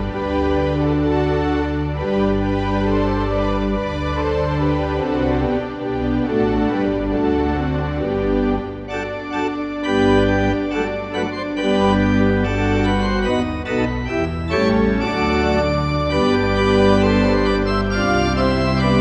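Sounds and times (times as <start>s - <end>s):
church organ playing full chords: 0.0s - 19.0s.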